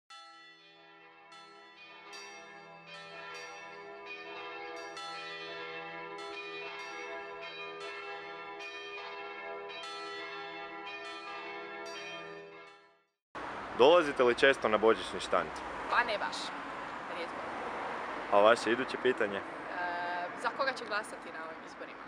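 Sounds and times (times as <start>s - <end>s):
bells ringing in a peal: 0.1s - 13.0s.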